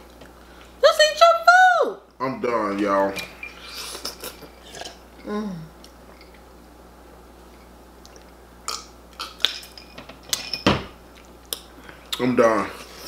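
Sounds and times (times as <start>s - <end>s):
wet smacking and squishing of eating: 8.0s - 9.5s, 11.1s - 12.2s.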